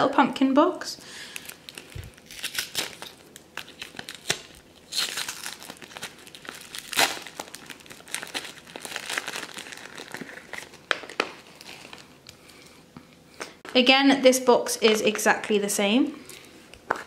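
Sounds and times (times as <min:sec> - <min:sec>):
plastic shrink-wrap crinkling: 0:01.2 - 0:12.6.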